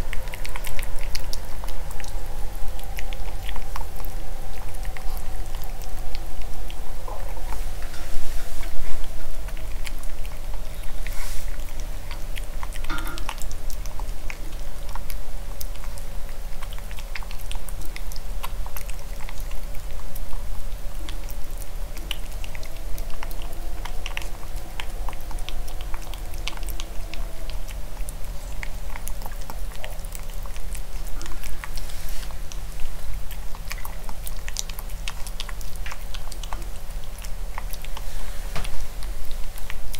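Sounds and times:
puppy chewing and licking: 0.0 - 39.9.

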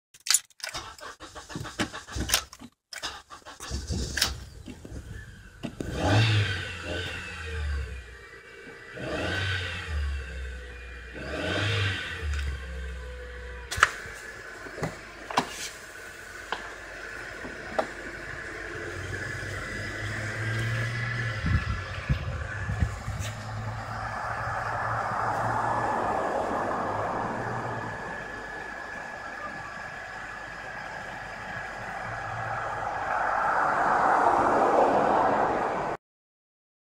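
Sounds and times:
car engine cranking and starting: 0.2 - 33.2.

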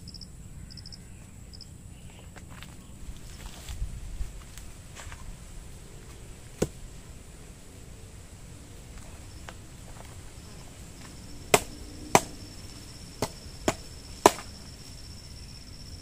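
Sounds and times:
blade chopping wood: 6.6 - 6.8, 11.5 - 12.4, 13.2 - 14.5.

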